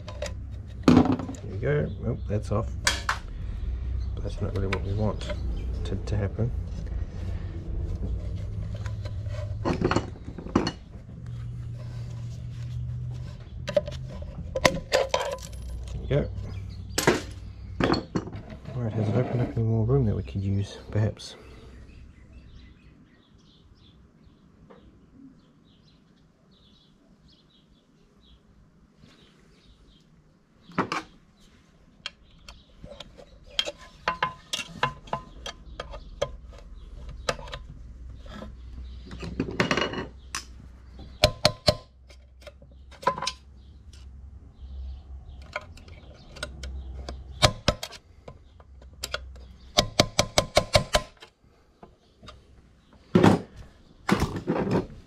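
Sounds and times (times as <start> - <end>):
tools clinking on metal parts: 13.7 - 16.4
sharp metal taps: 40.3 - 43.4, 45.4 - 51.2.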